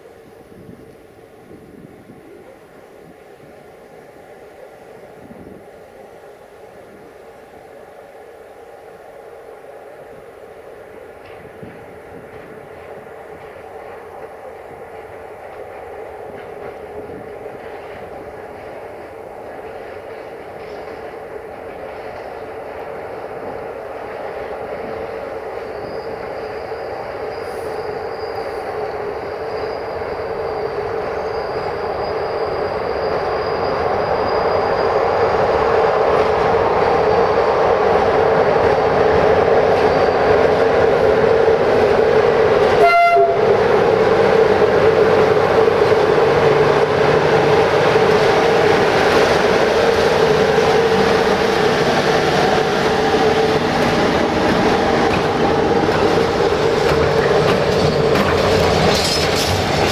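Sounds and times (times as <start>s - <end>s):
electric locomotives passing: 0.0s - 59.9s
train horn toot: 42.8s - 43.6s.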